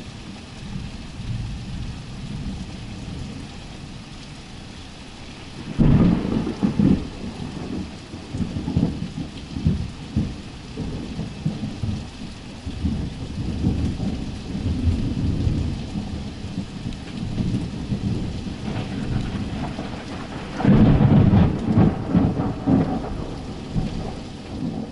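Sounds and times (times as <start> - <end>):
steady rain: 0.0 - 24.9
thunder: 5.6 - 12.0, 12.8 - 24.9.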